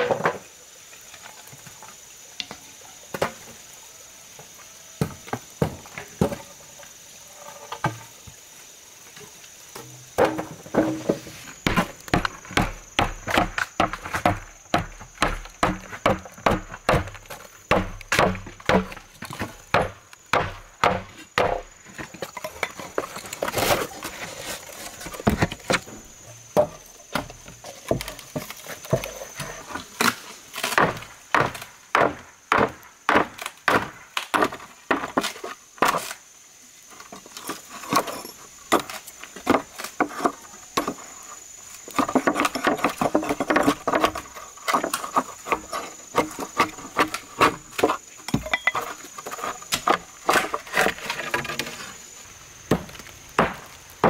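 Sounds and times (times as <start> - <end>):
hand tool striking wood: 10.2 - 21.7, 30.7 - 36.0, 52.7 - 53.7.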